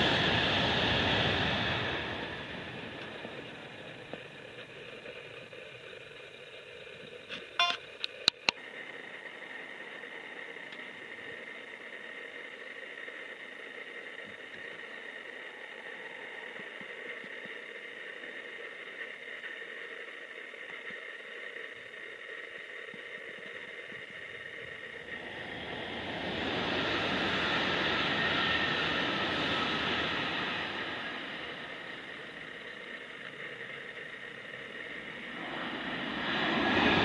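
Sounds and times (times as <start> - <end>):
high-speed train passing: 0.0 - 6.9, 24.1 - 37.0.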